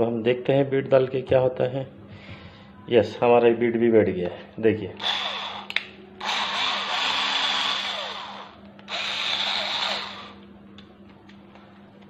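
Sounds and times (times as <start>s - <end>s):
electric screwdriver motor whirring: 5.0s - 10.4s.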